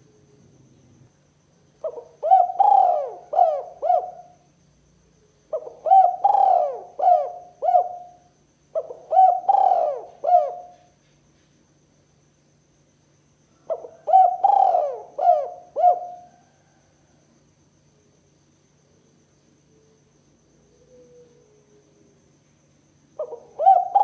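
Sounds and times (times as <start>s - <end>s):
dove cooing: 1.8s - 4.4s, 5.5s - 10.9s, 13.6s - 16.8s, 20.7s - 21.9s, 23.2s - 24.0s.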